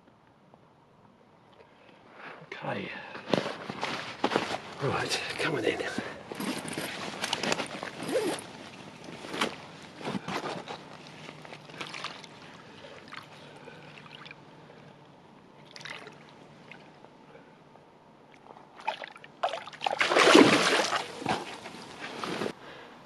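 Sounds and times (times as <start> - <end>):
water sloshing and splashing: 6.6 - 14.4, 15.6 - 17.1, 18.3 - 22.6.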